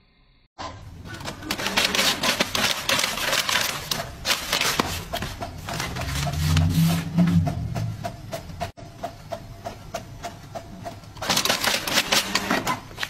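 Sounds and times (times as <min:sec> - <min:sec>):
inkjet printer clattering: 0:01.1 - 0:08.8, 0:09.7 - 0:13.0
paper rustling: 0:01.2 - 0:07.4.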